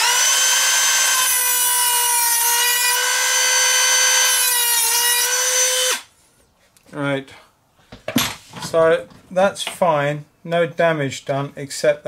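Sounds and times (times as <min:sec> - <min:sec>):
rotary tool cutting metal rail: 0:00.0 - 0:06.0.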